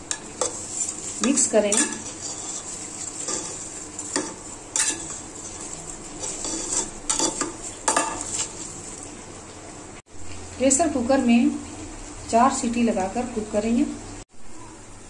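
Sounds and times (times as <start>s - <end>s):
spoon scraping a pot: 0.0s - 9.0s.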